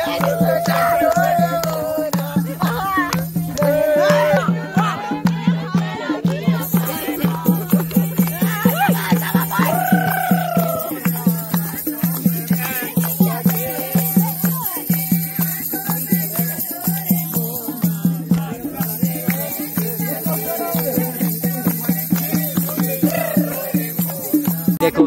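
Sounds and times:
people singing together: 0.0 - 25.0
rattling percussion: 0.0 - 25.0.

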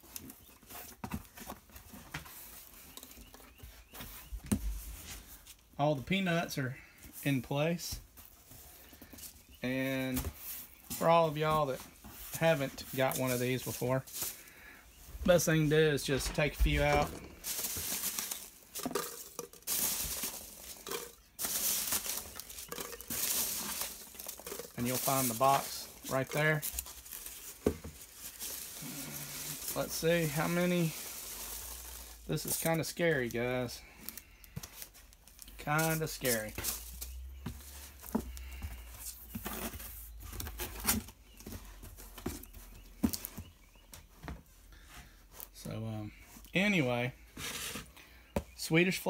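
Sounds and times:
packing peanuts rustling in box: 7.8 - 43.4.

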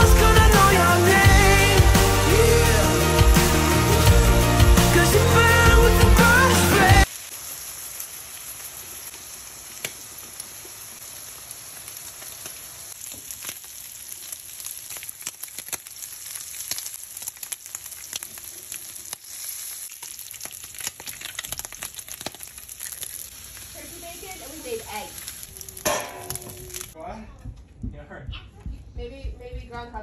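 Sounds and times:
sauce sizzling in a frying pan: 6.4 - 27.0
crackles and pops: 7.0 - 27.0.

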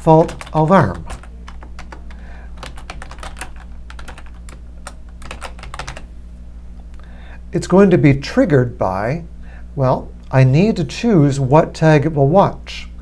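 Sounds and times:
keyboard typing: 0.0 - 6.1.

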